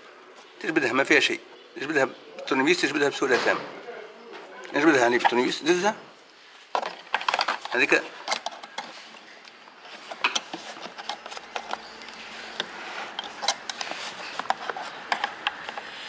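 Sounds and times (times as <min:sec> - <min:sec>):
screwdriver scraping plastic: 0:09.9 - 0:16.0.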